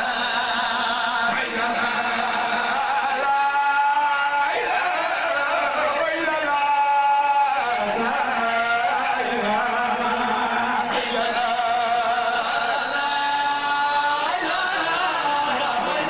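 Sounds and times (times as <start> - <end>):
man singing a devotional chant: 0.0 - 16.0.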